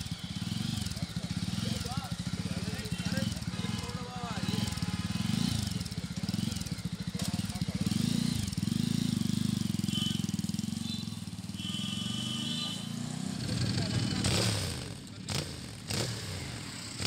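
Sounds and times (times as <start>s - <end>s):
single-cylinder engine idling: 0.0s - 11.8s.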